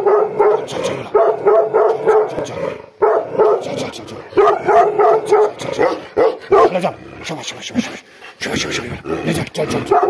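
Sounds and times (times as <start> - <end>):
dog barking aggressively: 0.0 - 7.0, 9.7 - 10.0.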